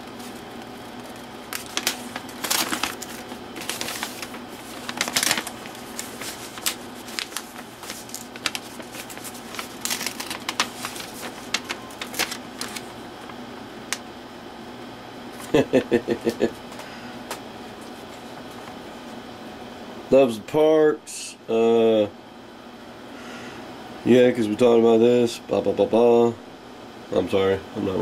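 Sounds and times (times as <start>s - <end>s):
packaging crinkling and tearing: 0.2s - 14.0s.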